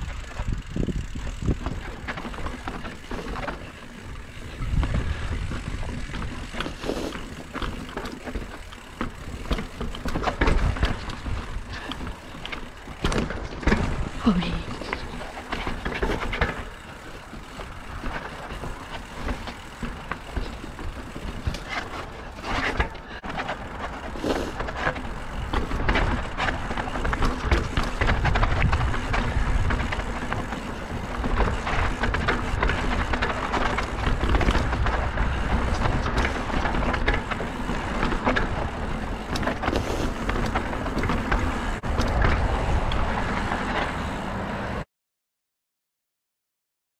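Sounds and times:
wind buffeting microphone: 0:00.0 - 0:06.9, 0:25.3 - 0:43.7
bike rattling and knocking: 0:00.0 - 0:44.8
bike tyres rolling over dirt: 0:00.0 - 0:44.8.

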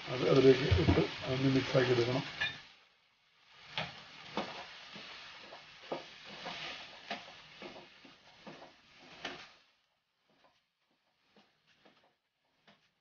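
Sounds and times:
vegetables sizzling in wok: 0:00.0 - 0:13.0
spatula knocking and scraping pan: 0:00.6 - 0:01.2, 0:03.7 - 0:09.6.

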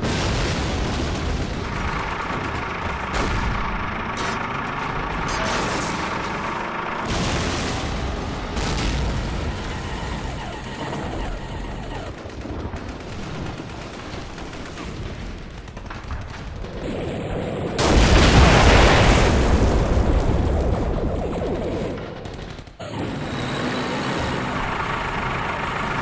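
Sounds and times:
loud explosion: 0:00.0 - 0:12.0, 0:15.0 - 0:21.8
gunfire and blasts: 0:00.0 - 0:26.0.

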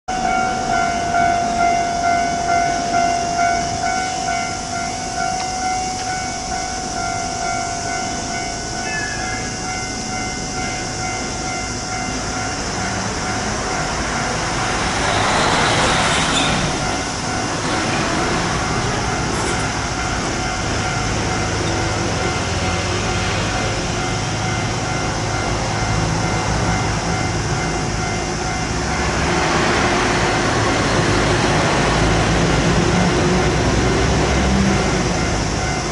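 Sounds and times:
electronic crossing bell ringing: 0:00.1 - 0:29.5
electric train rumble: 0:00.1 - 0:35.9.

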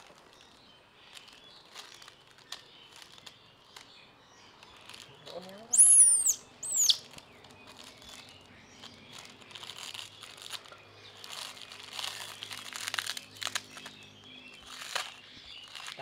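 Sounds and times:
plastic packet crinkling: 0:00.0 - 0:05.7, 0:06.9 - 0:16.0
high falling squeak: 0:05.8 - 0:07.0.

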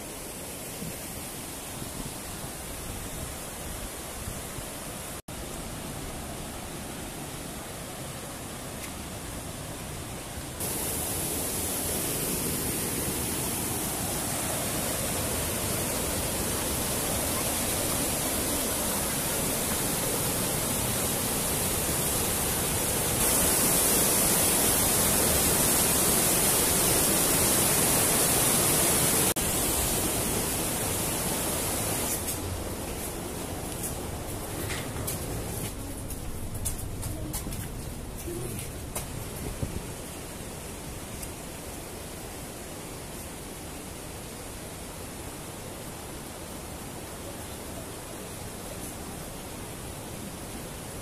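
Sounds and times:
river rapids rushing over rocks: 0:07.3 - 0:34.4.

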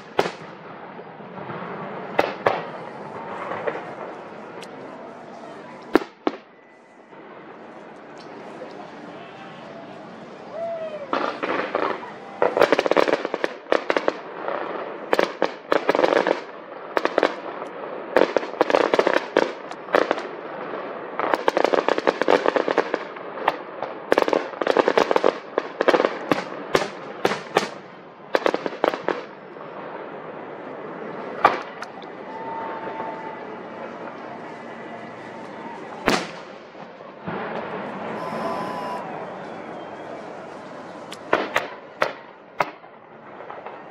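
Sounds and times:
fireworks popping and crackling: 0:00.0 - 0:09.1, 0:10.2 - 0:39.2, 0:40.3 - 0:43.9
loud firework bang: 0:36.0 - 0:39.0.

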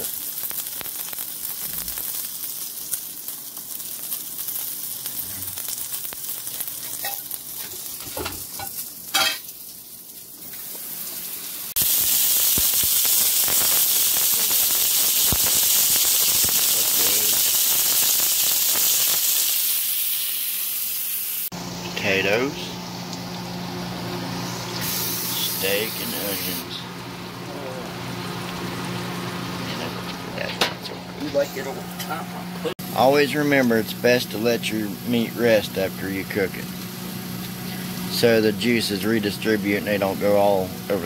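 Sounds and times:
steak sizzling in a skillet: 0:00.0 - 0:21.7, 0:22.8 - 0:26.7, 0:32.8 - 0:41.0.

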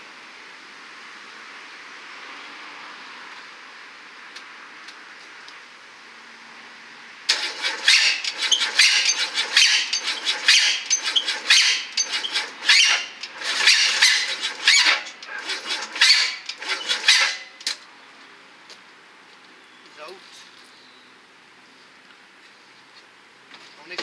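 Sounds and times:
starter motor cranking engine: 0:07.3 - 0:17.8.

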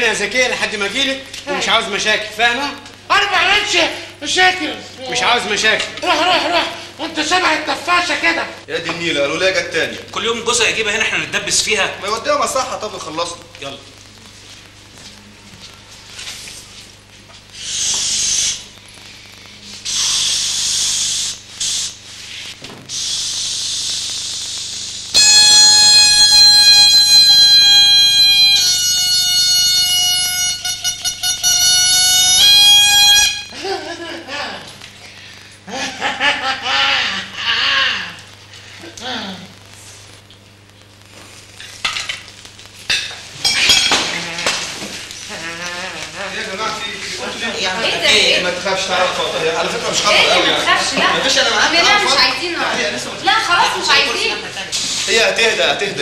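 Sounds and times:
air hissing from balloon: 0:17.5 - 0:33.3, 0:54.7 - 0:55.3
plates and cutlery clattering: 0:42.9 - 0:44.7
dishes clinking and crashing: 0:43.0 - 0:44.7.

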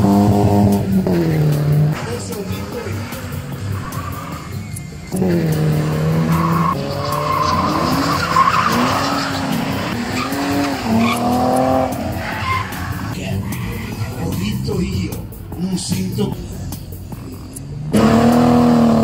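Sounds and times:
car engine revving hard: 0:00.0 - 0:04.4, 0:05.1 - 0:13.2, 0:17.2 - 0:19.0
tyres squealing and skidding: 0:01.2 - 0:15.0.

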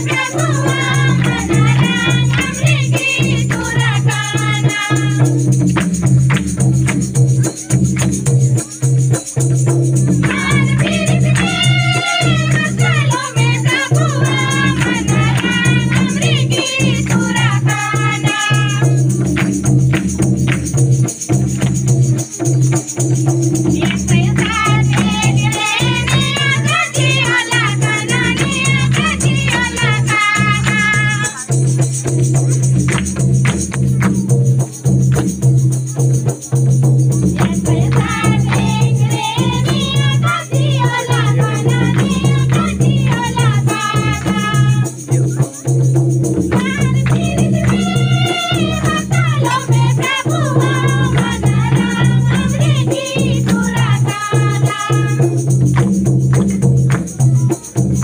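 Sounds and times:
group singing together: 0:00.0 - 0:05.8, 0:10.1 - 0:20.1, 0:23.7 - 0:31.5, 0:37.3 - 0:45.1, 0:46.4 - 0:55.9
barrel drum playing: 0:00.0 - 0:58.0
hand percussion: 0:00.0 - 0:58.0.

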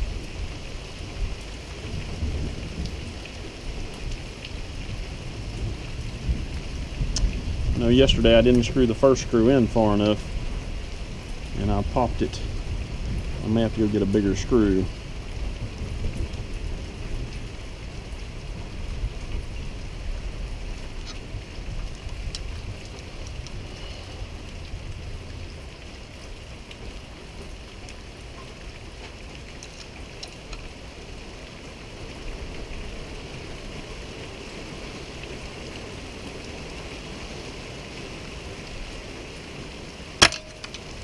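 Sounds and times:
rain patter: 0:00.0 - 0:41.0
sharp metallic ping: 0:40.2 - 0:40.7.

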